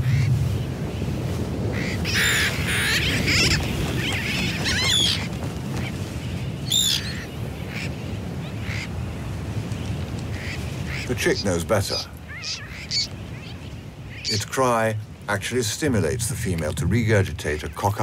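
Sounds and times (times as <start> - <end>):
steady low rumble: 0.0 - 4.3, 14.9 - 18.0
terns calling: 0.0 - 18.0.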